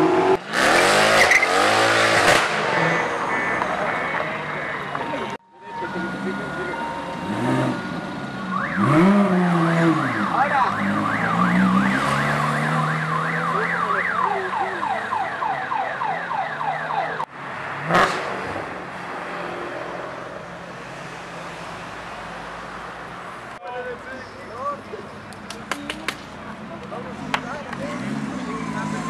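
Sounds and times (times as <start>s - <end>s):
car engine revving: 0.0s - 5.1s, 5.8s - 15.0s
street and crowd noise: 0.0s - 29.0s
siren wailing: 2.8s - 17.3s.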